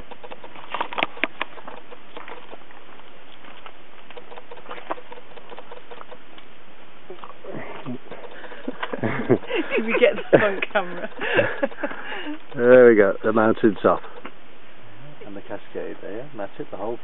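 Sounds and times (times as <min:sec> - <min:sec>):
footsteps on dirt path: 0:00.0 - 0:06.4
outdoor background hiss: 0:00.0 - 0:17.0.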